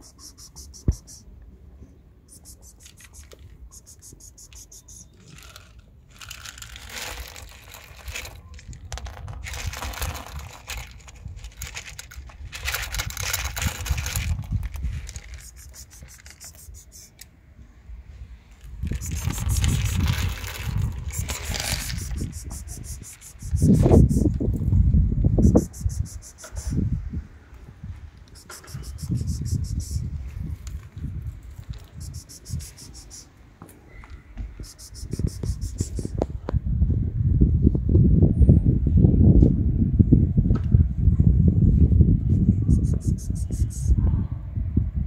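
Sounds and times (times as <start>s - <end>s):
kibble rattling out of bottle: 2.3s - 17.2s, 18.6s - 24.4s, 28.4s - 30.0s, 30.6s - 33.3s, 34.6s - 36.1s.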